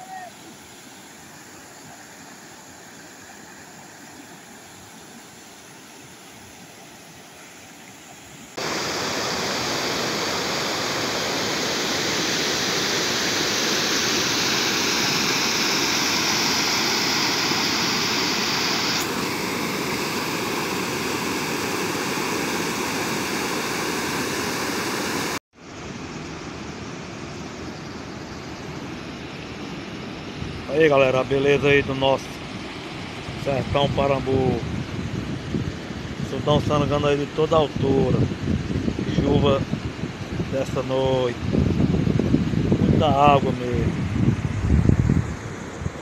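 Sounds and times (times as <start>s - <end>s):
river rushing over rocks: 6.5s - 25.4s.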